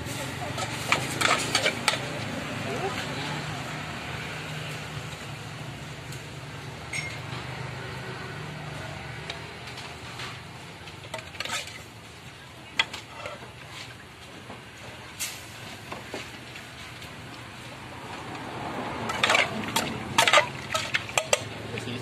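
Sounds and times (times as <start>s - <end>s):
metal spoon clinking on pot: 19.1s - 21.6s.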